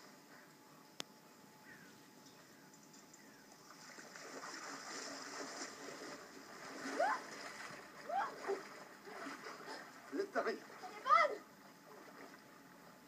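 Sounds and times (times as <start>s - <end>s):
water splashing: 3.5s - 13.0s
person crying out: 7.0s - 7.3s, 8.1s - 8.4s.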